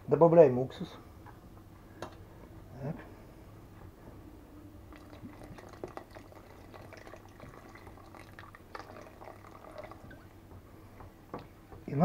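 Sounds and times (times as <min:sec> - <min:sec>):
sauce bubbling in pot: 0:04.8 - 0:10.6
spoon stirring: 0:04.9 - 0:10.4
vinegar pouring from bottle: 0:04.9 - 0:10.4.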